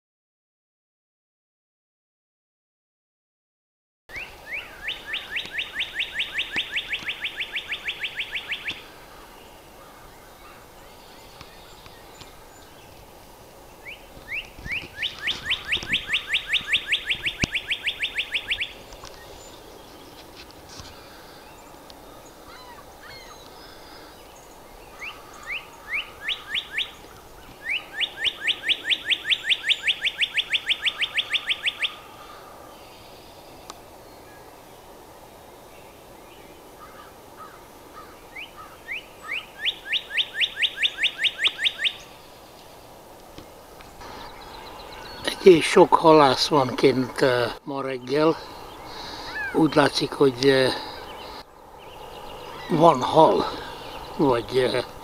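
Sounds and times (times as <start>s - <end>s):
bird singing whistled songs: 4.1s - 8.9s, 13.7s - 20.2s, 21.4s - 32.0s, 38.3s - 42.4s, 44.0s - 46.3s, 47.9s - 55.0s.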